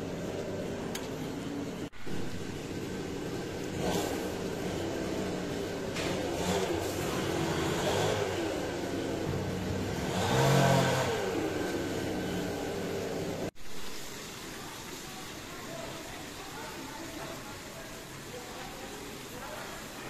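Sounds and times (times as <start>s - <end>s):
vehicle engine revving: 3.6s - 13.5s.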